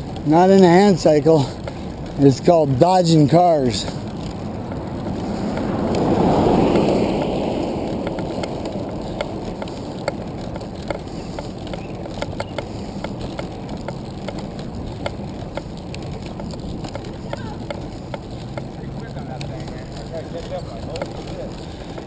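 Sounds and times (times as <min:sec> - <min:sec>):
small clicks and rattles: 0:00.0 - 0:22.0
wind and tyre noise: 0:00.0 - 0:22.0
whoosh of noise: 0:04.1 - 0:10.9.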